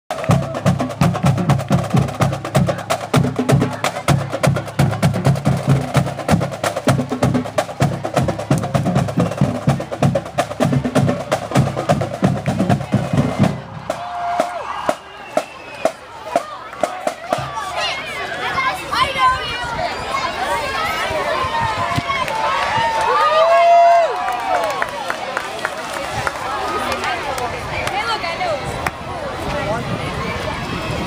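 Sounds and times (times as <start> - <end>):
drumline playing cadence: 0.1 - 18.2.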